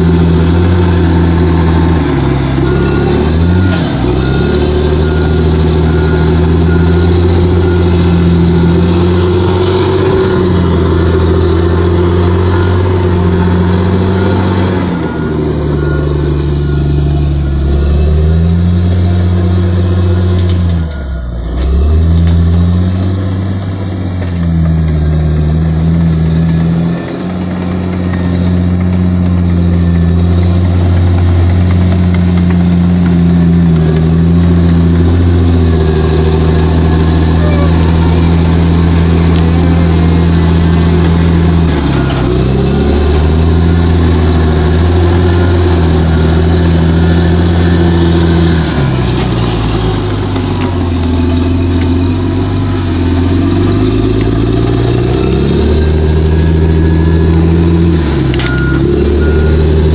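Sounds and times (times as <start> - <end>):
bulldozer diesel engine running hard: 0.0 - 59.9.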